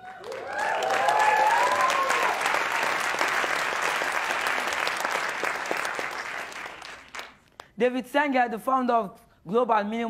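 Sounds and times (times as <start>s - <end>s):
people whooping and cheering: 0.0s - 4.8s
audience applauding: 0.0s - 7.6s.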